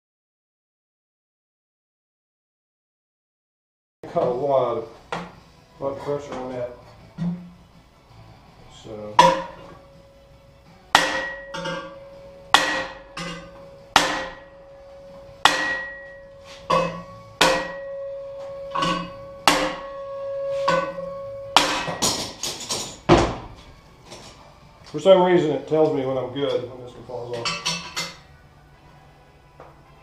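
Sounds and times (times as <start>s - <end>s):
hammer striking metal frame: 9.1s - 10.1s, 10.8s - 24.4s
heavy thud: 23.0s - 23.7s.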